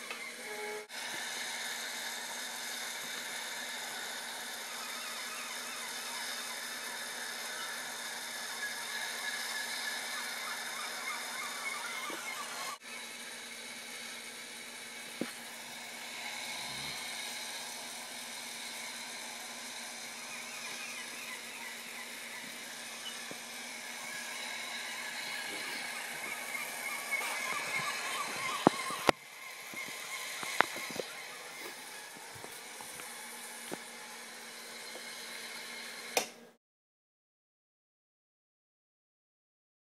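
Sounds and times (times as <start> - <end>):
toy train motor whirring: 0.0 - 36.4
click: 36.2 - 36.4.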